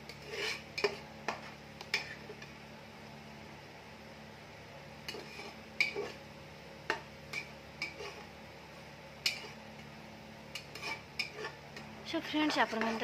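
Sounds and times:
spatula scraping metal pot: 0:00.0 - 0:02.5, 0:05.1 - 0:06.2, 0:07.3 - 0:08.3, 0:09.2 - 0:09.6, 0:10.5 - 0:11.9, 0:12.5 - 0:13.0.

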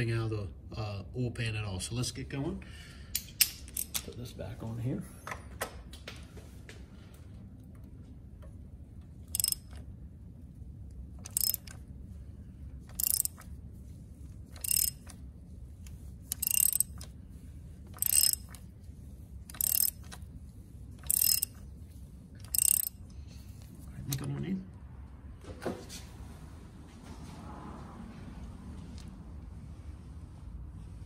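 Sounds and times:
hand ratchet clicking: 0:09.3 - 0:09.8, 0:11.2 - 0:11.8, 0:12.9 - 0:13.5, 0:14.5 - 0:15.2, 0:15.8 - 0:17.1, 0:17.9 - 0:18.7, 0:19.5 - 0:20.3, 0:21.0 - 0:21.7, 0:22.4 - 0:23.1.

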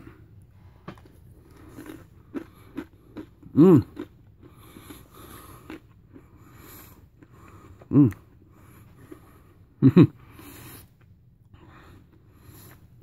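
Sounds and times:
person chewing nuts: 0:00.1 - 0:13.0
person humming mmm: 0:03.5 - 0:04.0.

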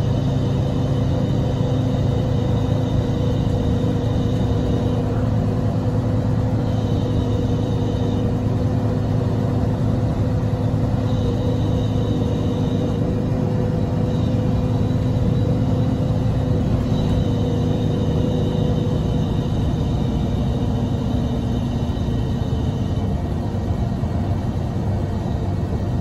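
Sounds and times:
bus engine and tyres rumbling: 0:00.0 - 0:26.0.

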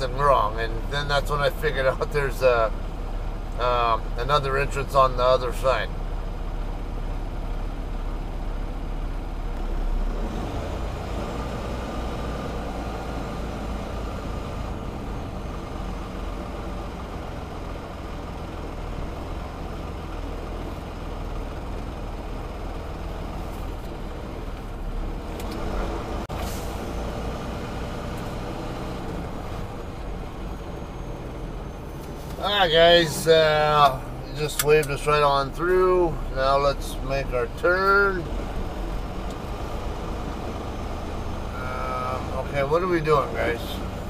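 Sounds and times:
diesel engine rumbling: 0:00.0 - 0:44.0.

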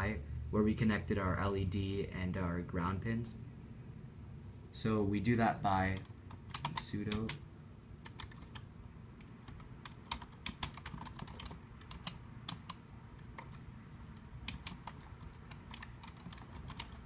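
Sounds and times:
computer keyboard keys clicking: 0:05.9 - 0:07.4, 0:08.0 - 0:17.0.

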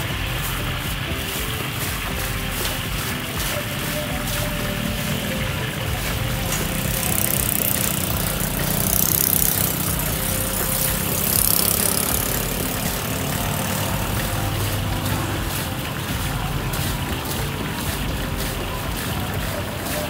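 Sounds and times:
low engine hum: 0:04.0 - 0:19.8.

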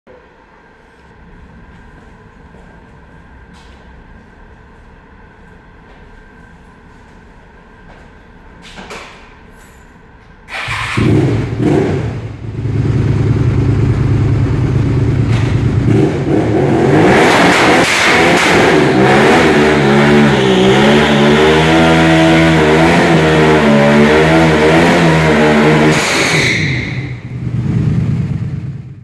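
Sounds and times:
motorcycle engine revving: 0:10.5 - 0:29.0.

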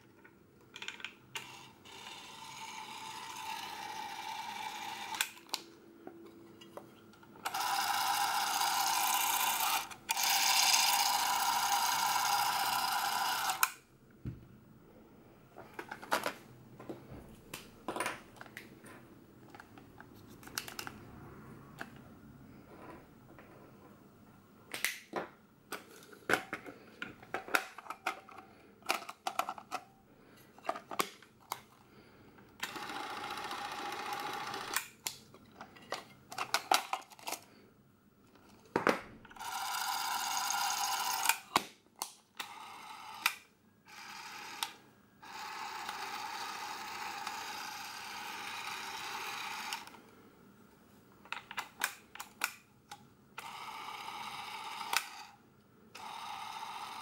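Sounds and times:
camera motor whirring: 0:01.4 - 0:05.6, 0:07.5 - 0:13.7, 0:39.4 - 0:41.4, 0:43.9 - 0:50.0, 0:53.4 - 0:55.3, 0:56.0 - 0:57.0.

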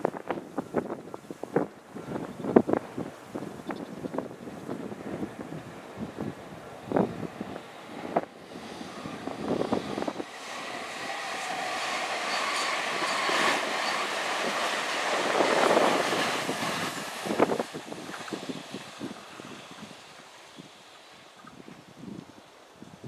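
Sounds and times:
wind thumps on microphone: 0:00.0 - 0:11.0, 0:14.4 - 0:20.0
electric train passing: 0:04.2 - 0:22.5.

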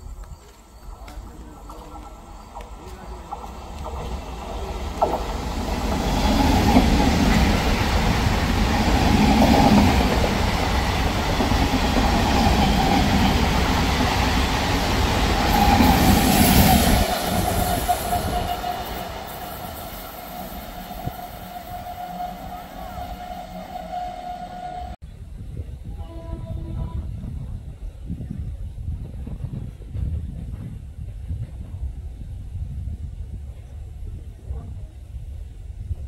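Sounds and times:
train running past: 0:00.0 - 0:25.0.

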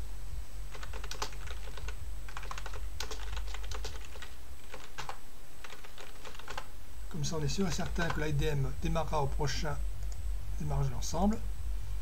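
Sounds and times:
typing on a computer keyboard: 0:00.7 - 0:06.7.

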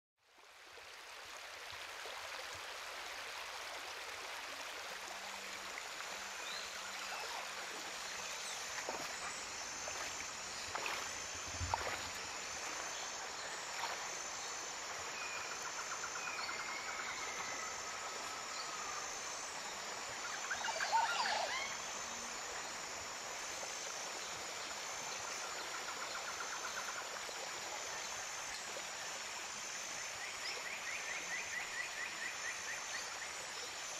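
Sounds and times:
stream rushing over stones: 0:00.4 - 0:15.7.

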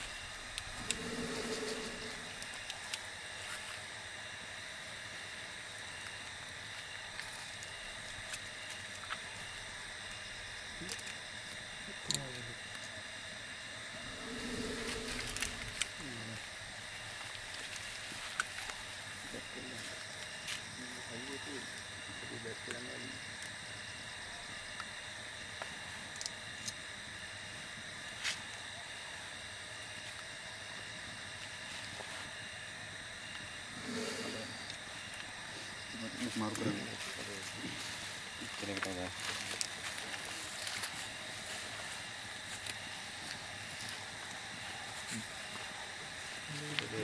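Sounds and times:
background hiss: 0:00.0 - 0:02.8, 0:13.9 - 0:16.5
insect chorus buzzing: 0:00.0 - 0:28.4, 0:29.4 - 0:47.0.

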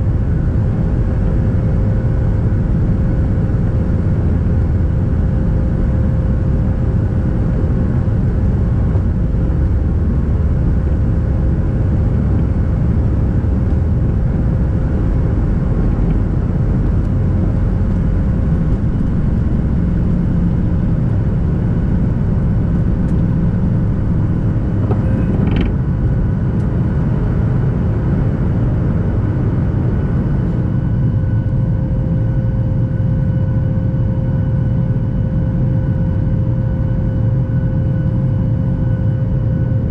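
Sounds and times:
jet engines roaring: 0:06.6 - 0:33.2.

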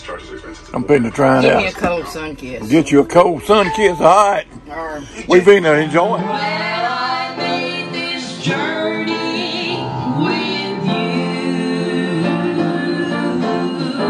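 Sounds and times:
woman and man singing: 0:06.2 - 0:14.0.

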